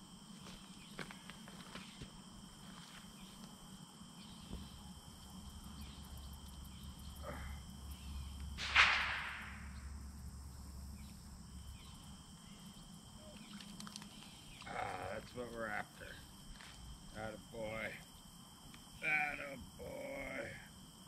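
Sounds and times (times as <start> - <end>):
insects droning: 0.0 - 21.0.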